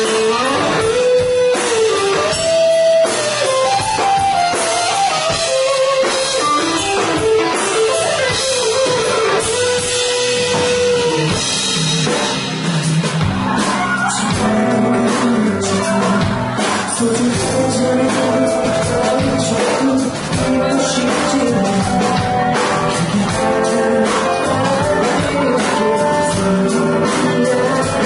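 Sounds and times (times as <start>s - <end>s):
melodic lead guitar line: 0.0s - 28.0s
rock band playing live: 0.0s - 28.0s.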